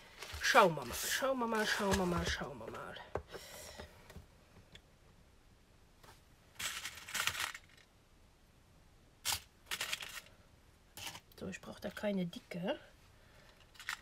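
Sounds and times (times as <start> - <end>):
small metal parts rattling in box: 6.6 - 7.9, 9.3 - 10.3, 13.5 - 14.0.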